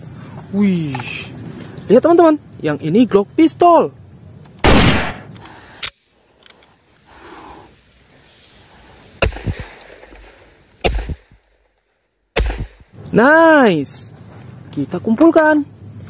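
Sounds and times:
pistol shots: 4.6 - 5.3, 9.2 - 11.4, 12.4 - 12.8
high insect buzz: 5.2 - 11.4.

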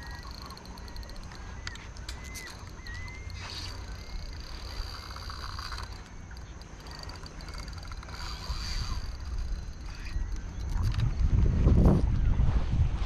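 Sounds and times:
fishing reel gears rattling: 0.0 - 11.4
wind on microphone: 7.4 - 13.0.

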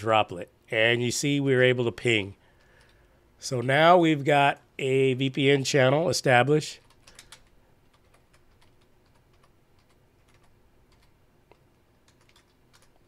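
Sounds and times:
faint keyboard typing: 2.5 - 3.1, 6.8 - 13.0.

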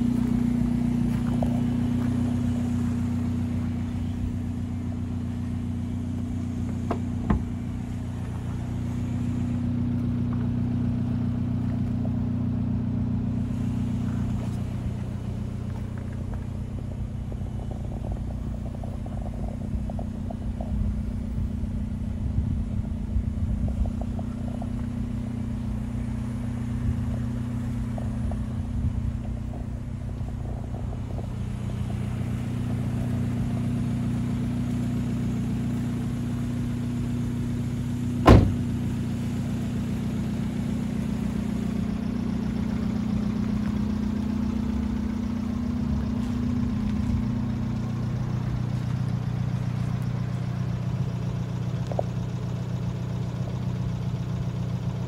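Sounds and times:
car engine idling: 0.0 - 55.0
sharp knock: 38.2 - 38.7.

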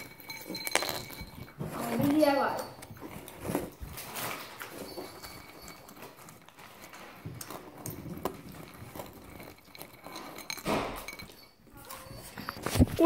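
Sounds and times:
crackers being chewed: 3.0 - 10.6.

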